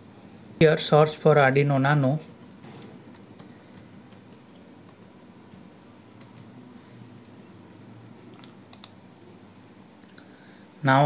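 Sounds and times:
keyboard typing: 0:02.3 - 0:07.6, 0:08.3 - 0:09.0.

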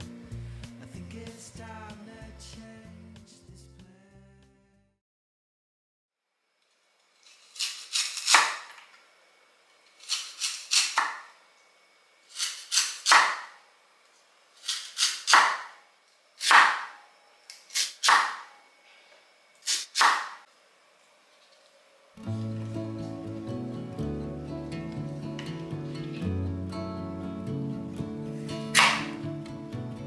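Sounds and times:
blade scraping lotus root: 0:07.2 - 0:08.7.

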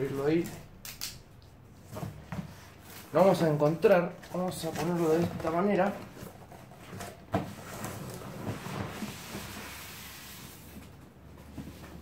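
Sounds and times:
cardboard scraping: 0:04.2 - 0:12.0.

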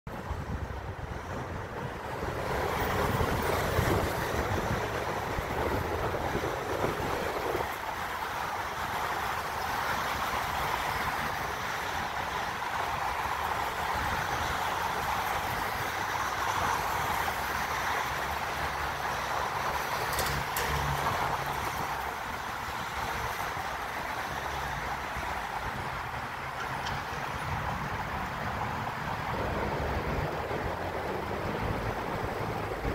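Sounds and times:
tyres hissing on road: 0:00.2 - 0:32.9.

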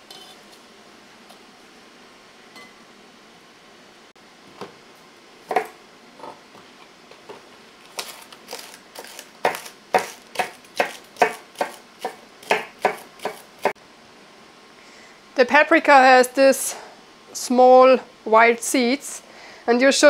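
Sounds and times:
knife chopping on cutting board: 0:05.5 - 0:05.7, 0:08.0 - 0:13.8.

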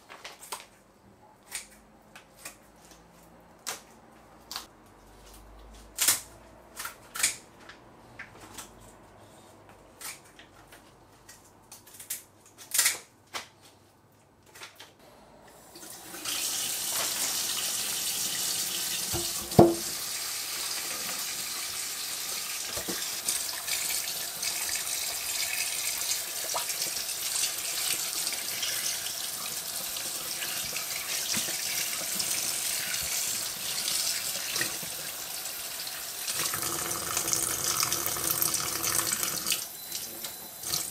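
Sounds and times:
tap water running into sink: 0:15.8 - 0:40.0, 0:40.6 - 0:40.9
sharp knock: 0:19.2 - 0:19.9.

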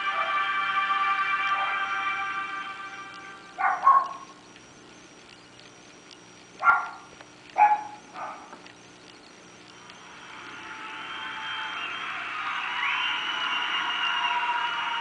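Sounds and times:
dog barking: 0:03.6 - 0:04.2, 0:06.6 - 0:08.6.

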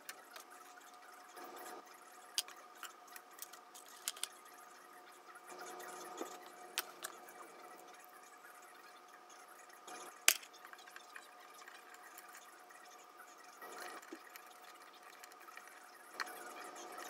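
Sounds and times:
faint hum: 0:00.0 - 0:17.0
small parts clicking: 0:02.3 - 0:04.4, 0:06.2 - 0:07.4, 0:09.9 - 0:12.5.

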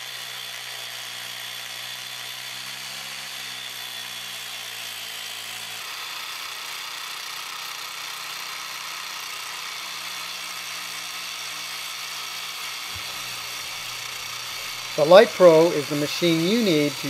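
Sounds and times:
concrete grinding hiss: 0:11.8 - 0:17.0.

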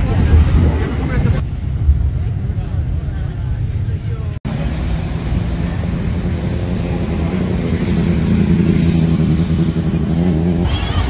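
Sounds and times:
van passing: 0:01.4 - 0:11.0
motorcycle passing: 0:04.5 - 0:11.0.

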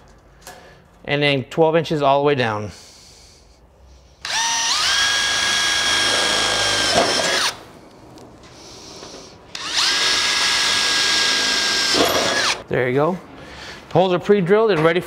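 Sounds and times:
cordless drill whining: 0:04.2 - 0:07.6, 0:08.9 - 0:12.6.

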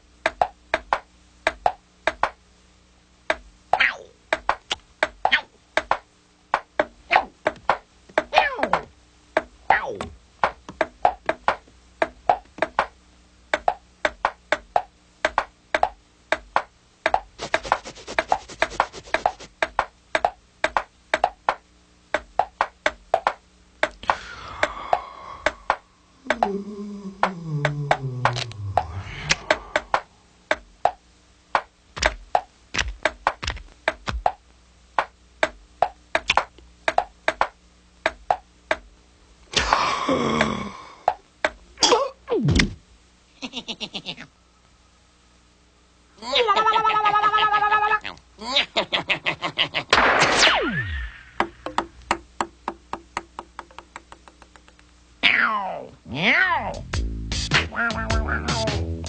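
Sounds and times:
cartoon knocks and clacks: 0:00.2 - 0:02.4, 0:10.4 - 0:24.0, 0:31.6 - 0:34.4, 0:35.0 - 0:38.9, 0:51.4 - 0:54.8.

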